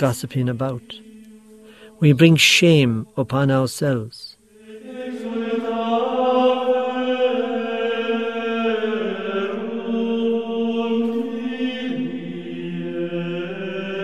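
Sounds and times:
slow chant-like background music: 0.0 - 3.5, 4.4 - 14.0.

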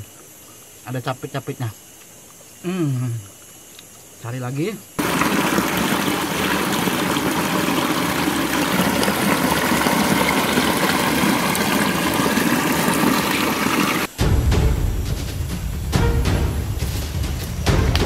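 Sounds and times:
stream rushing over boulders: 5.0 - 14.1.

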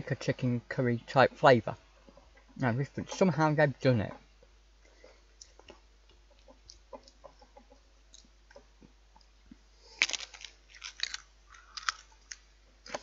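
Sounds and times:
crisp crunching between teeth: 9.8 - 13.0.

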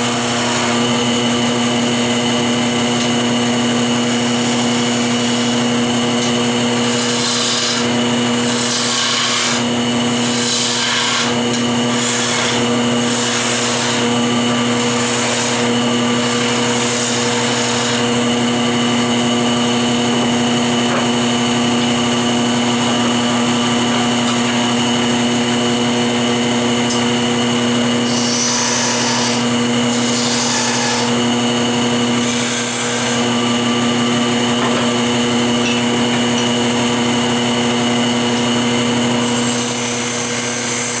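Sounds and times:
turning tool cutting wood hissing: 0.0 - 20.6, 27.9 - 35.1, 36.9 - 41.0
wood lathe motor hum: 0.0 - 41.0.

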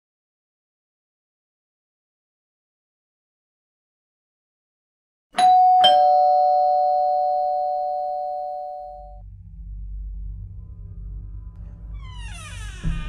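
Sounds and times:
two-tone doorbell chime: 5.4 - 9.2
low rumble: 9.2 - 13.0.

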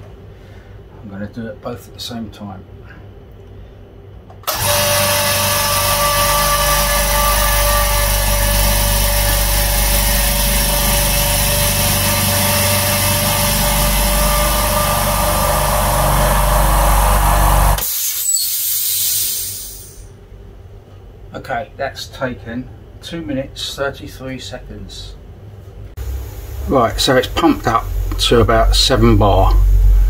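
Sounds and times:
air compressor running: 4.4 - 20.1, 26.0 - 30.0
air hiss: 17.8 - 20.1.

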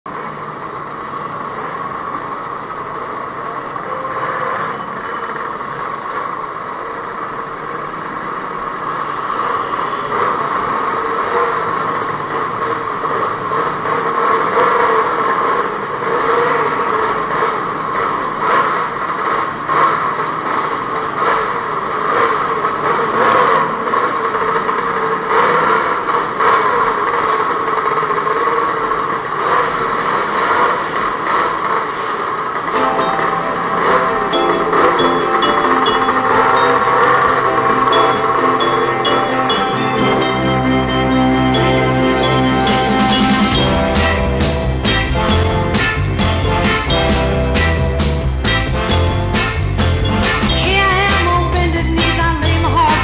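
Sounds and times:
many scooter engines running: 0.1 - 39.8.

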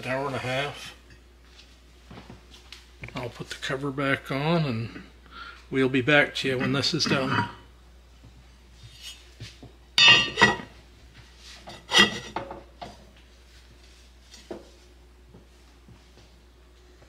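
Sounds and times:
cast iron lid clanking: 6.5 - 7.6, 10.0 - 10.7, 11.7 - 12.6.

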